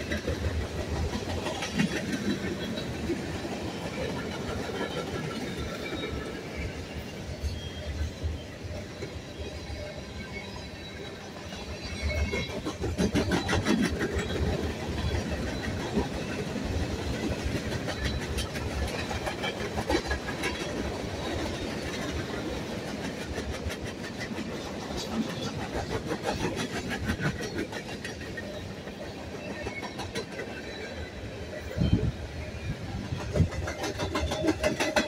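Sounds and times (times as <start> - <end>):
wheels clicking over rail joints: 0.0 - 6.3, 11.5 - 30.6, 33.0 - 35.0
steel wheels rumbling on rail: 0.0 - 35.0.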